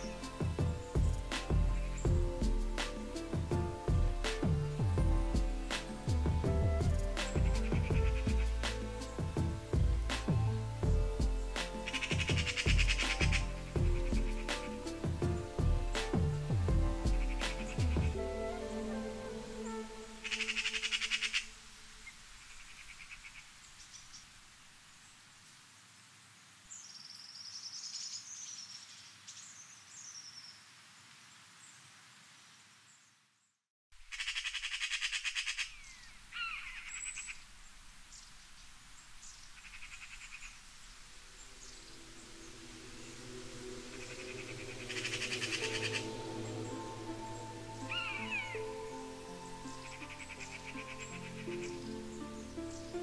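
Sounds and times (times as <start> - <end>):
small birds chirping and whistling: 0.0 - 21.4, 43.9 - 53.0
buzzy rasping bird trills: 11.5 - 15.0, 20.1 - 21.5.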